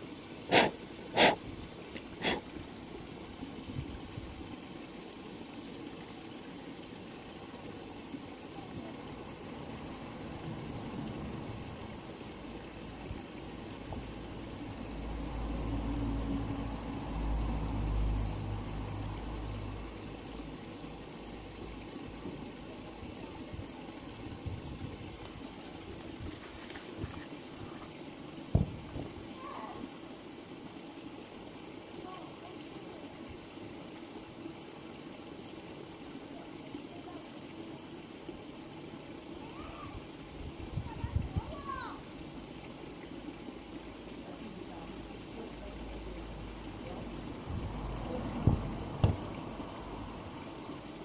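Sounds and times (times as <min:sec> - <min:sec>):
low engine hum: 0:13.8 - 0:21.8, 0:45.8 - 0:50.6.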